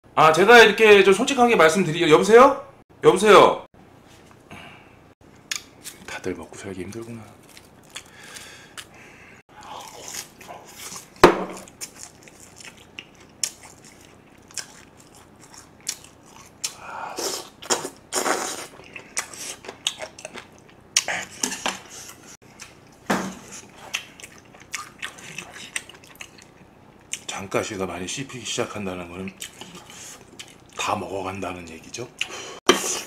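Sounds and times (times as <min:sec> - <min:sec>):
close chewing mouth sounds: 0:07.0 - 0:21.4, 0:23.6 - 0:27.3, 0:29.2 - 0:30.8.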